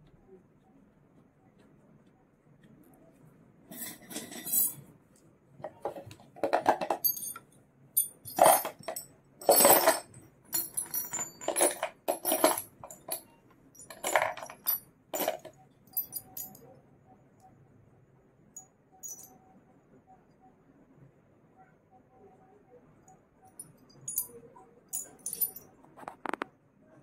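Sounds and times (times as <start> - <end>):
jewellery clinking and jingling: 3.7 - 4.9, 5.6 - 7.4, 8.0 - 16.7, 19.0 - 19.4, 23.5 - 25.8.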